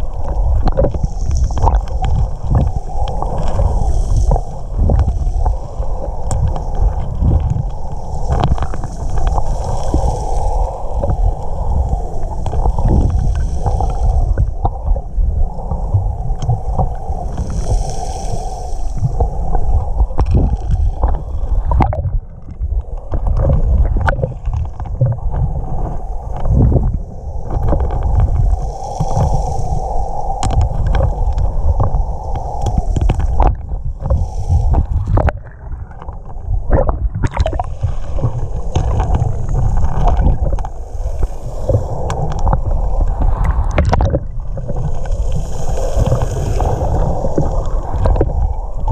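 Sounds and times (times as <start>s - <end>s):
underwater rumble of moving water: 0.0s - 48.9s
underwater clicks and knocks: 0.1s - 10.0s, 19.0s - 29.4s, 30.3s - 40.8s, 41.6s - 45.2s, 45.8s - 48.9s.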